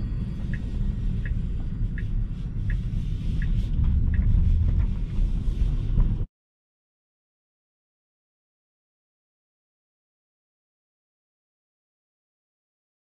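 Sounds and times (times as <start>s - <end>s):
road and tyre rumble in car: 0.0s - 6.3s
turn signal ticking: 0.0s - 6.3s.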